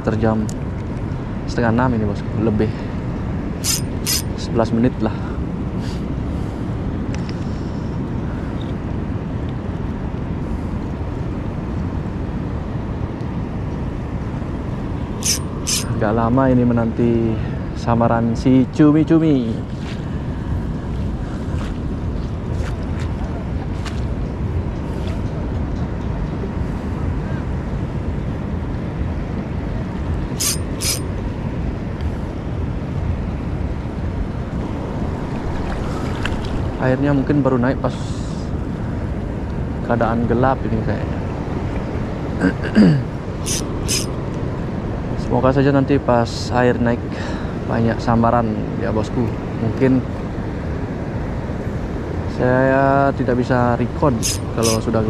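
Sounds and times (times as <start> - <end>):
wind rumble on microphone: 0.0 - 55.0
short sharp clicks: 3.6 - 4.2, 15.2 - 15.9, 30.4 - 31.0, 43.5 - 44.1, 54.2 - 54.8.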